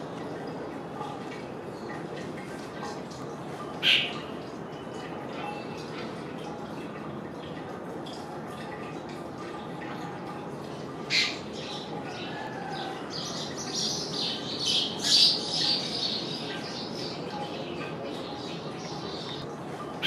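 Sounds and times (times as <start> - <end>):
bird harsh squawking calls: 3.8 - 4.2.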